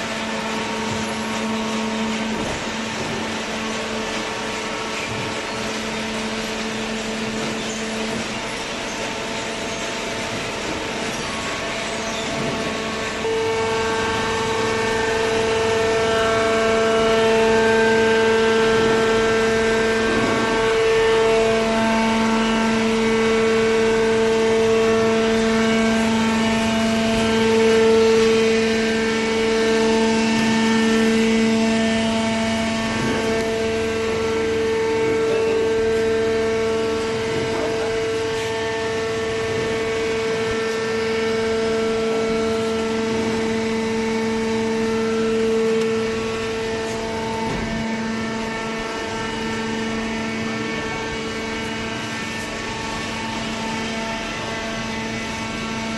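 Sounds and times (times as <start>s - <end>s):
motor and hydraulic pump humming: 0.0s - 55.9s.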